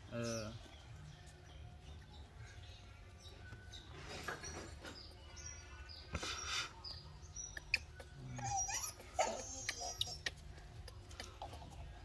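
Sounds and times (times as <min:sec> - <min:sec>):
animal squeaks and chirps: 0:05.5 - 0:11.7
animal whining call: 0:07.6 - 0:10.4.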